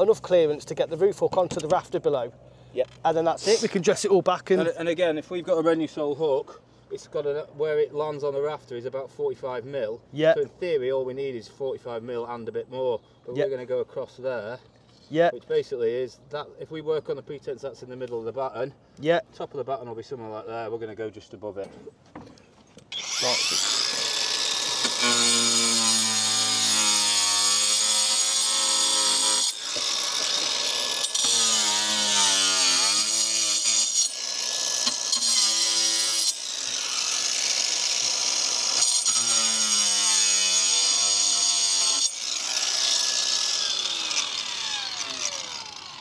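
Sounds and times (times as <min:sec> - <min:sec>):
angle grinder cutting slate: 0:22.9 - 0:46.0.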